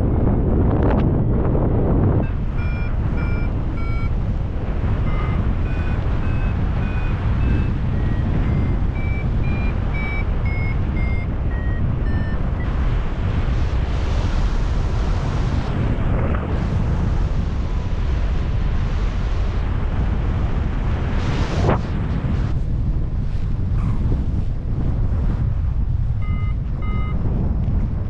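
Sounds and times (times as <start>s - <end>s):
wind noise on microphone: 0.0s - 28.0s
variometer beeping: 2.2s - 13.0s, 26.2s - 27.2s.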